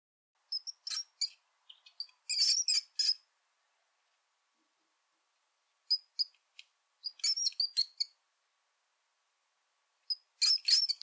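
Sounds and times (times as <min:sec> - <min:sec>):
mouse squeaking: 0:00.5 - 0:03.2, 0:05.9 - 0:06.4, 0:07.0 - 0:08.2, 0:10.1 - 0:11.0.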